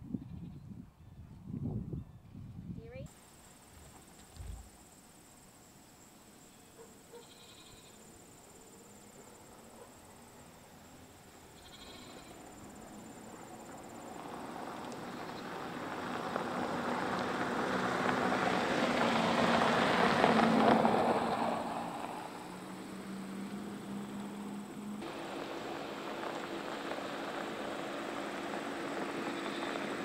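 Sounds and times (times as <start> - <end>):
engine passing by: 8.4 - 30.0.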